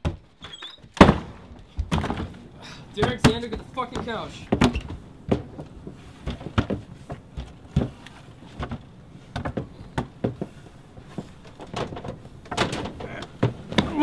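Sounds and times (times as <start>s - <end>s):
banging on wooden door: 11.6s - 14.0s.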